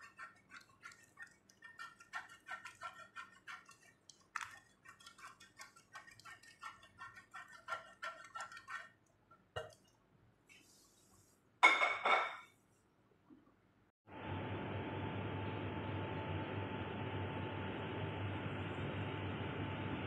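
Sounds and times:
spatula tapping on foil: 0.0 - 8.9.

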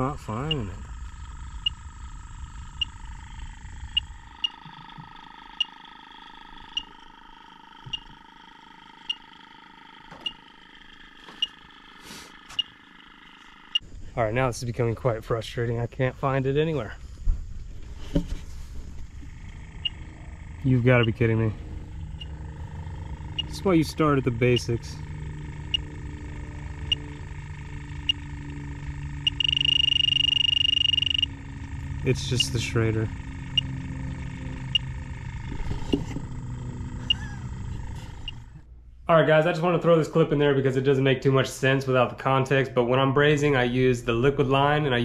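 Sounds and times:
leak detector beeping: 0.0 - 13.9, 18.0 - 38.7
continuous alarm tone: 0.0 - 40.3
steady electronic whine: 0.0 - 45.0.

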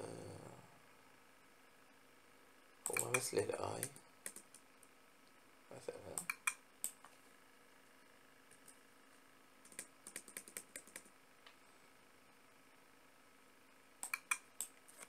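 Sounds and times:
computer keyboard keystrokes: 2.9 - 4.6, 6.2 - 7.0, 9.6 - 11.1, 14.0 - 14.7.

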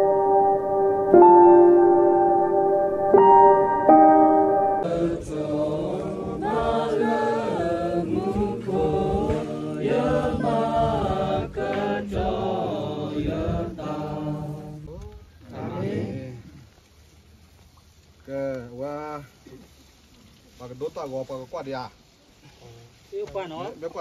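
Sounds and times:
group of voices singing: 4.8 - 16.5.

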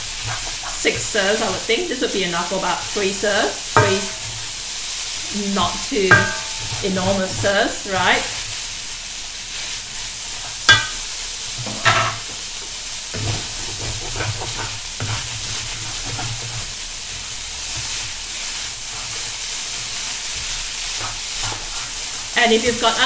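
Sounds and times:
food sizzling in a wok: 0.0 - 23.0
spatula tossing and scraping noodles: 0.0 - 23.0
spatula knocking against wok: 3.8 - 4.4, 6.0 - 8.1, 10.7 - 12.4.

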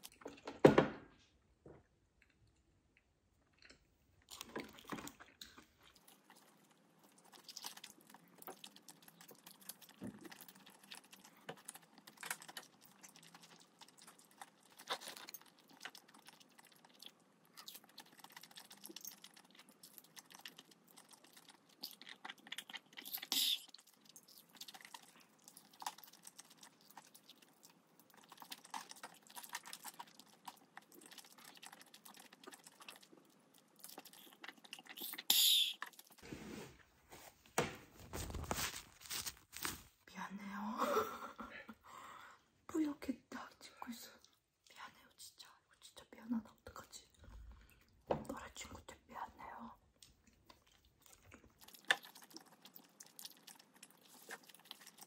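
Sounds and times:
chewing food: 2.1 - 36.2, 43.8 - 45.2, 46.4 - 55.0.

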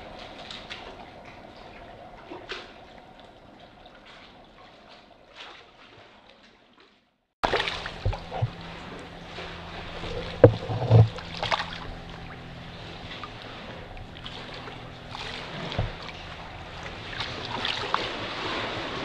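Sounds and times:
water splashing and sloshing: 0.0 - 19.0
sharp knocks: 10.4 - 11.2.

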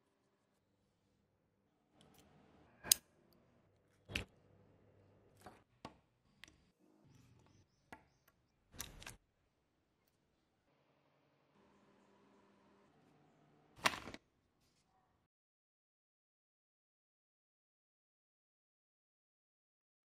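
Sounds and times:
plastic parts clicking: 8.7 - 9.2.

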